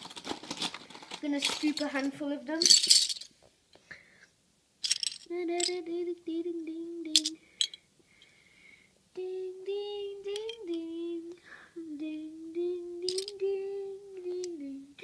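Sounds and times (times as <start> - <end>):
metal bottle caps clinking: 1.4 - 3.3, 4.8 - 5.7, 7.2 - 7.8, 13.1 - 13.3
person singing long held notes: 9.1 - 15.0.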